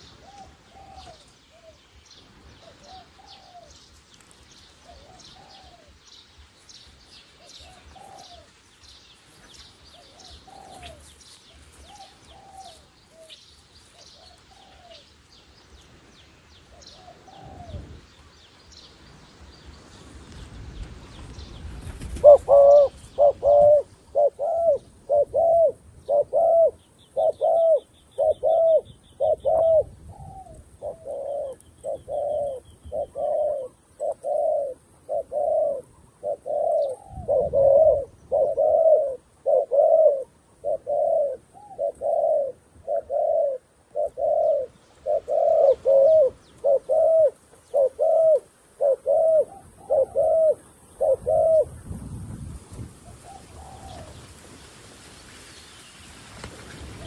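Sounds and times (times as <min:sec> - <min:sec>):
dove cooing: 0:00.0 - 0:01.8, 0:02.6 - 0:03.8, 0:04.8 - 0:06.0, 0:07.4 - 0:08.6, 0:09.9 - 0:15.1, 0:16.7 - 0:18.0, 0:22.0 - 0:51.9, 0:53.0 - 0:54.3.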